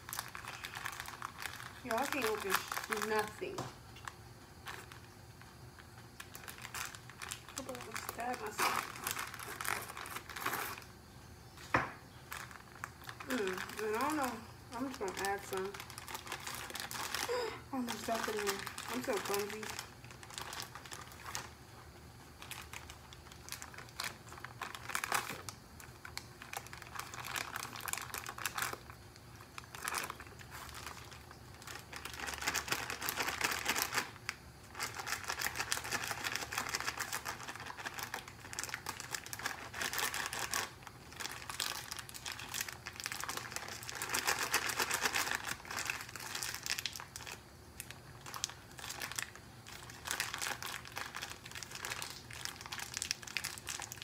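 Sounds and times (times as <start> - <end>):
plastic bag crinkling: 0.0 - 54.0.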